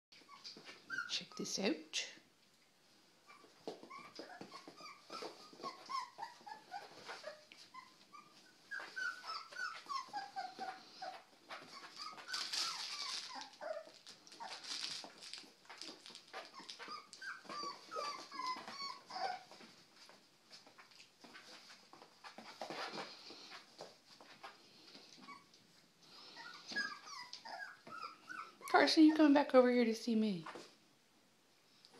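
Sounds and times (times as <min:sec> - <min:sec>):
puppies whimpering and squeaking: 0:00.2 - 0:01.5, 0:03.2 - 0:19.8, 0:20.6 - 0:29.2
light clicks and scuffles: 0:03.4 - 0:25.7.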